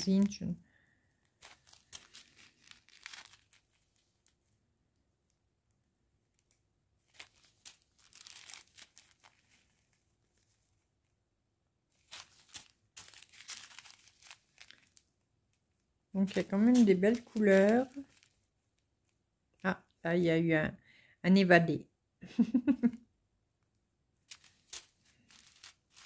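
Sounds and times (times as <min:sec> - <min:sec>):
plastic bags crinkling: 0:01.2 - 0:04.4, 0:06.4 - 0:10.6, 0:12.0 - 0:15.2, 0:16.2 - 0:18.5, 0:24.3 - 0:26.0.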